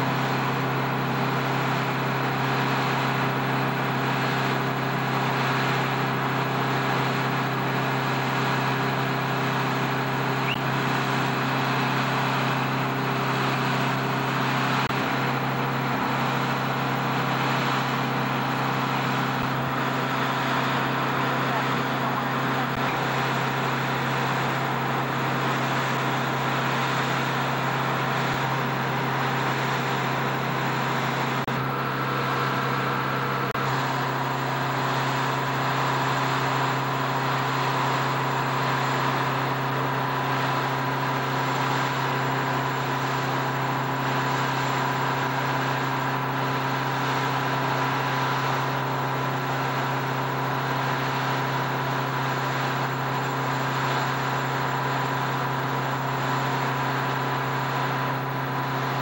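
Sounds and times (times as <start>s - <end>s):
low machine hum: 0.0s - 59.0s
high-pitched whine: 8.5s - 31.7s.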